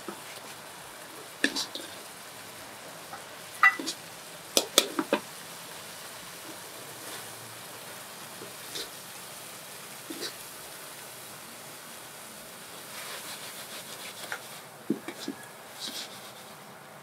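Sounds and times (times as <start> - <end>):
curry sizzling in a wok: 0.0 - 17.0
metal ladle scraping a wok: 12.9 - 16.6.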